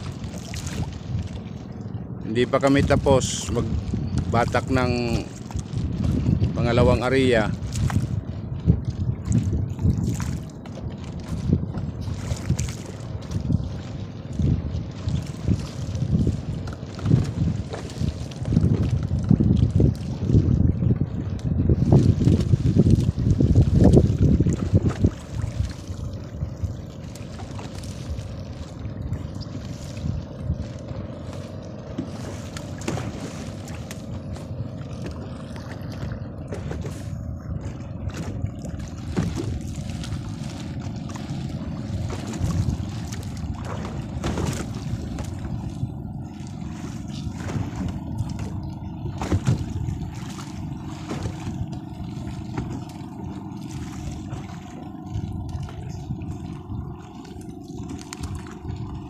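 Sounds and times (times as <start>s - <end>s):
boat engine low rumble: 0.0s - 59.0s.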